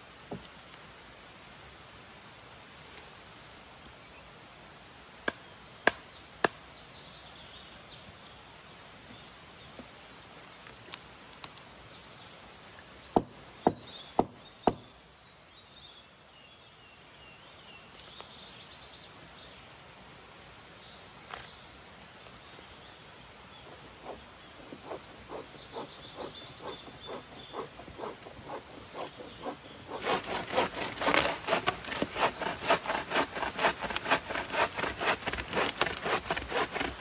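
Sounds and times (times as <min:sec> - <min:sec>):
axe chopping wood: 0:05.2 - 0:06.6.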